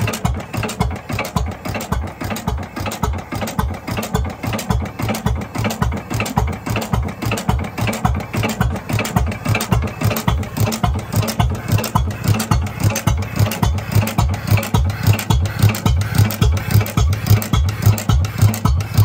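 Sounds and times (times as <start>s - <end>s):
hit-and-miss engine running: 0.0s - 19.0s.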